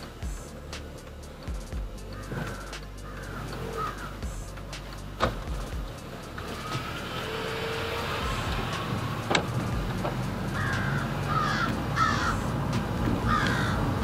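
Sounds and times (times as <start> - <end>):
car driving slowly: 0.0 - 14.0
birds cawing: 2.0 - 4.6, 10.5 - 14.0.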